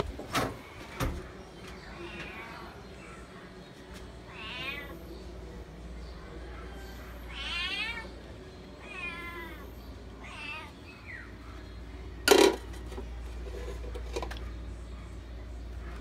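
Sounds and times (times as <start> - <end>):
cat meowing: 4.3 - 5.0, 7.3 - 8.1, 8.8 - 10.8.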